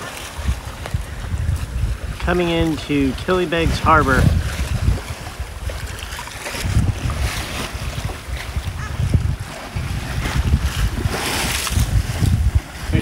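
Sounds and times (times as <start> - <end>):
waves splashing along hull: 0.0 - 13.0
wind buffeting microphone: 0.0 - 13.0.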